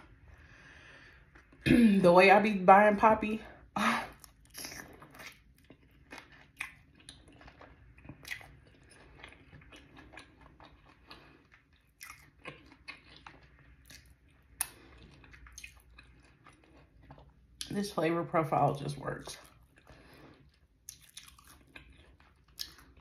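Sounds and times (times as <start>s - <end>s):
chewing crispy chicken: 4.1s - 17.7s, 19.2s - 23.0s.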